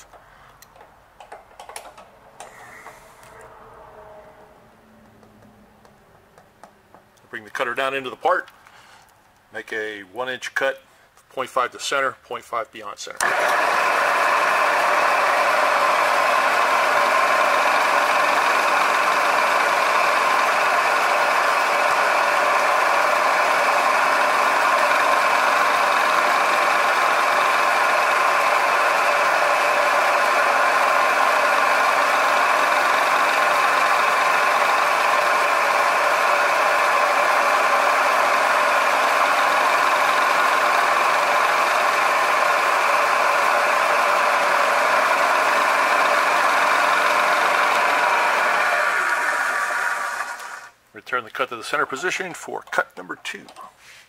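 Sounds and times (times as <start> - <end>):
milling machine cutting metal: 13.2 - 50.7.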